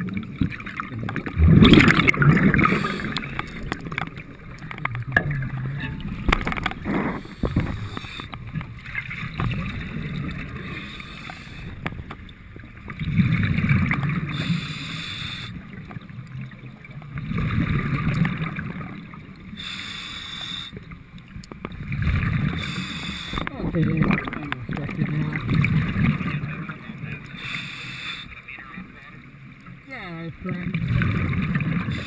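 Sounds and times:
diver breathing underwater: 1.4s - 4.2s, 6.4s - 8.6s, 10.4s - 12.0s, 14.1s - 15.8s, 19.5s - 21.0s, 22.1s - 23.6s, 27.3s - 28.4s, 31.8s - 32.0s.

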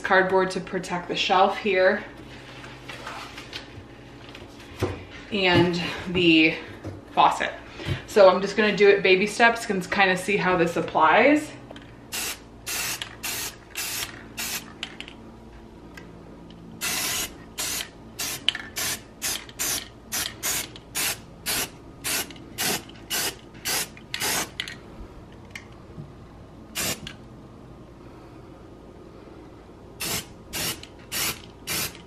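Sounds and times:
spray paint can hissing: 12.1s - 14.7s, 16.8s - 24.6s, 26.8s - 27.1s, 30.0s - 32.0s.

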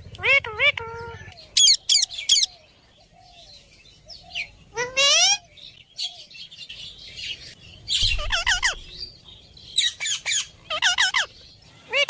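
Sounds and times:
parakeets squawking: 0.0s - 2.6s, 4.7s - 5.5s, 7.9s - 9.2s, 9.8s - 12.0s.

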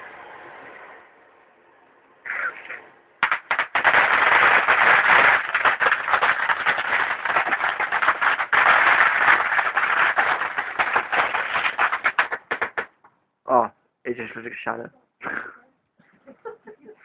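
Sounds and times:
firework crackling hiss: 2.3s - 12.9s
firework pops: 3.2s - 13.0s.

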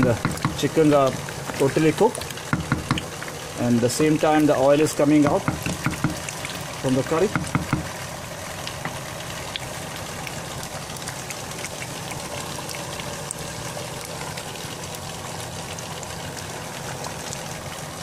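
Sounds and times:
pot boiling hard: 0.0s - 18.0s
bubbles popping: 5.2s - 8.0s.

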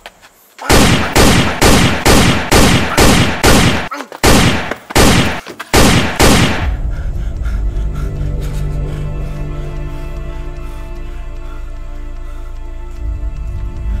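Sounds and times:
pistol shots: 0.7s - 6.8s.

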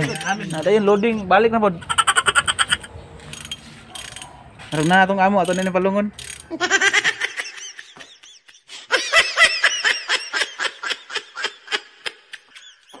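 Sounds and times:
high-pitched laughter: 0.0s - 3.0s, 6.5s - 13.0s.

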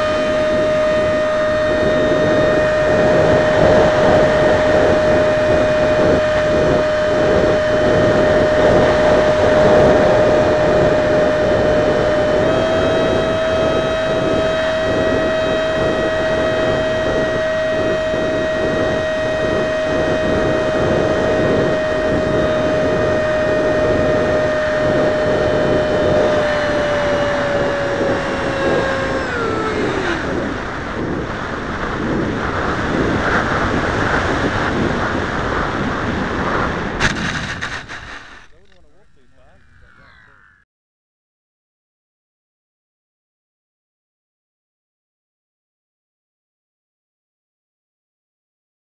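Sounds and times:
wind rush: 0.0s - 40.5s
electric ducted fan whine: 0.0s - 40.6s.

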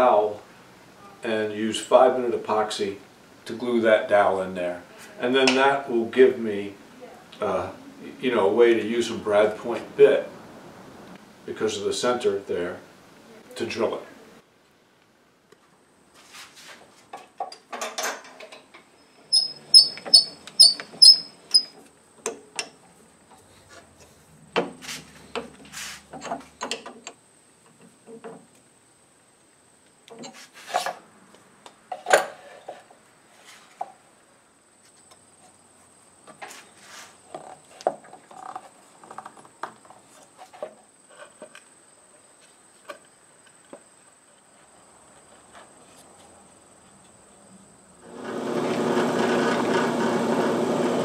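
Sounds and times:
clicks and knocks of wood and metal: 17.0s - 18.9s, 21.6s - 28.6s, 31.7s - 33.0s, 37.3s - 41.7s.

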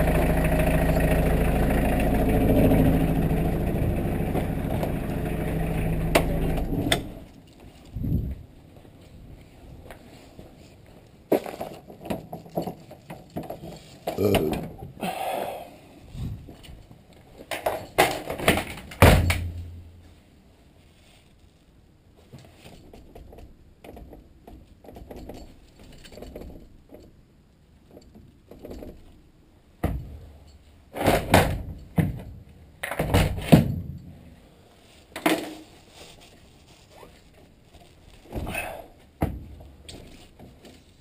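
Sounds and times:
metal clunks and thuds: 17.6s - 19.8s, 29.8s - 30.2s, 31.0s - 34.0s, 39.2s - 39.7s.

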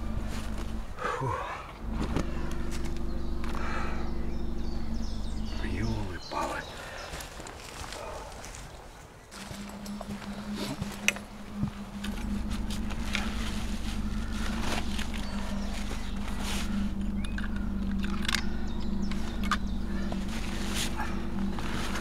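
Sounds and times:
low motor hum: 0.0s - 8.6s, 9.3s - 22.0s
sharp clicks: 14.5s - 20.6s.

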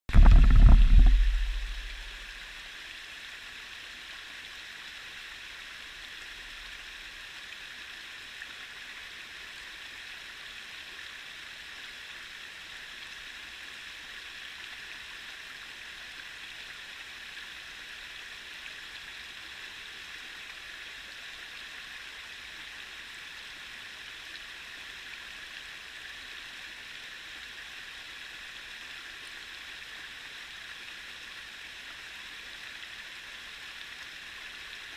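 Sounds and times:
loud low rumble: 0.1s - 2.3s
creek rushing over stones: 0.1s - 7.8s.

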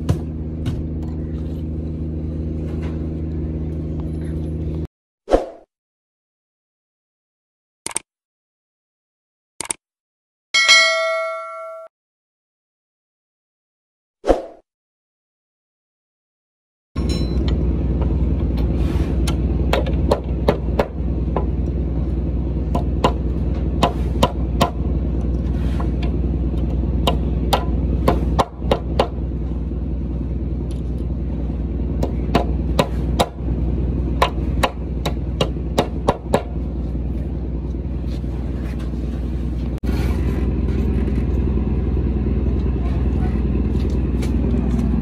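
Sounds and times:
hammer ringing on steel: 10.6s - 11.9s
low hum: 17.0s - 45.0s.

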